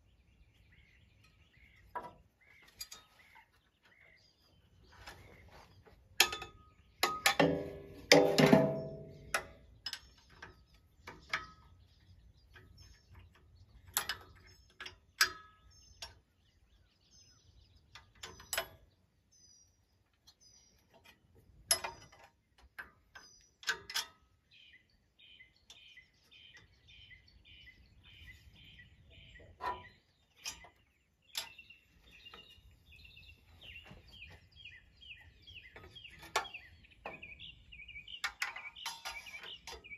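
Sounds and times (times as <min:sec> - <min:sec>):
birds chirping: 0:00.0 - 0:39.9
tools clanking on metal: 0:01.2 - 0:04.0, 0:05.9 - 0:16.3, 0:20.2 - 0:24.6, 0:29.2 - 0:39.9.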